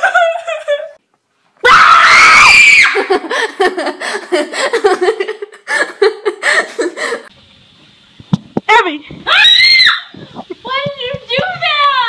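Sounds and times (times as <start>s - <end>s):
high-pitched scream: 1.6s - 3.1s, 9.3s - 10.2s
person laughing: 3.0s - 7.3s.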